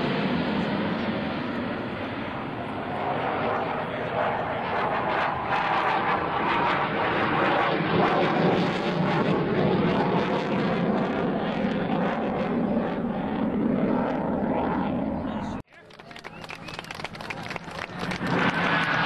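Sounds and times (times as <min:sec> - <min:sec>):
loud jet engine noise: 0:00.0 - 0:19.0.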